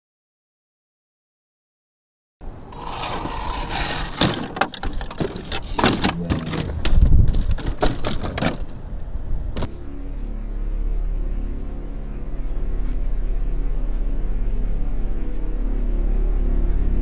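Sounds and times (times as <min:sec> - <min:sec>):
truck knocking and clattering on rock: 0:03.7 - 0:08.9.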